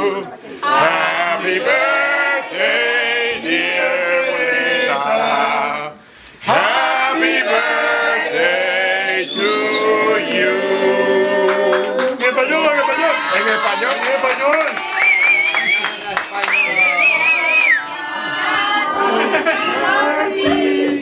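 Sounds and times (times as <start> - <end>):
group of people singing: 0.0 - 12.3, 17.3 - 21.0.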